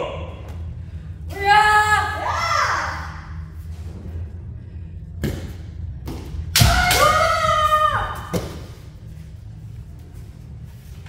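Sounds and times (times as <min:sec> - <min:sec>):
high drawn-out shout: 0:06.6 - 0:08.3.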